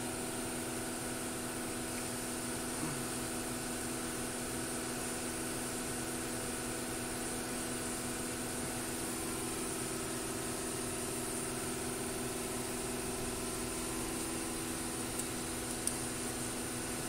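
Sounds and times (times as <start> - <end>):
machine hum with held tones: 0.0 - 17.0
hiss: 1.6 - 12.8.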